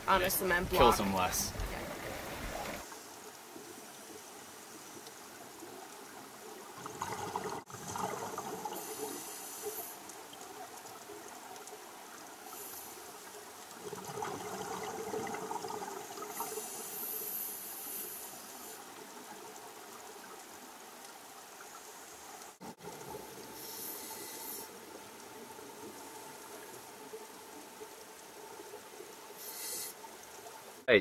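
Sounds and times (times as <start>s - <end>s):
underwater water wash: 0.0s - 30.9s
bubbling of exhaled breath: 6.8s - 10.0s, 13.8s - 18.6s.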